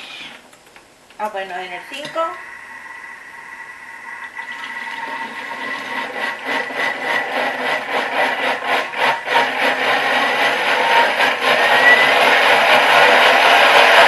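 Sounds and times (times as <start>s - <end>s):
food processor blending: 4.4s - 14.0s.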